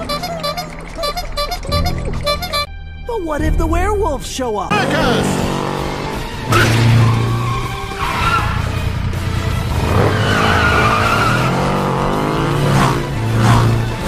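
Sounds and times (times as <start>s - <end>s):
music: 0.0s - 14.0s
cartoon motorcycle engine revving: 4.7s - 14.0s.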